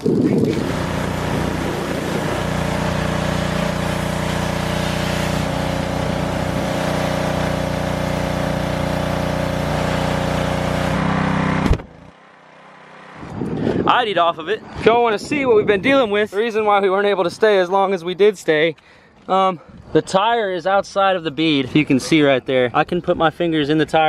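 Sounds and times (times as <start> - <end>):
pressure washer motor droning: 0.2 - 13.8
high-pressure water spray hissing: 0.5 - 11.0.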